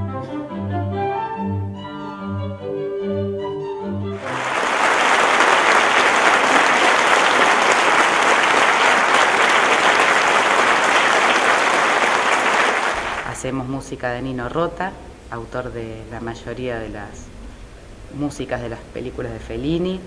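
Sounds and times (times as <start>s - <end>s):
audience applauding: 4.2s - 13.4s.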